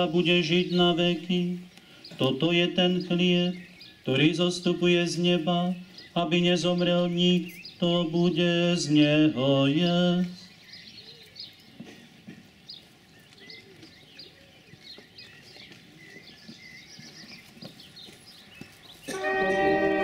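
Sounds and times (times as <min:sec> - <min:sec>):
birds chirping: 0:00.0 - 0:20.0
brass band playing chords: 0:19.1 - 0:20.0.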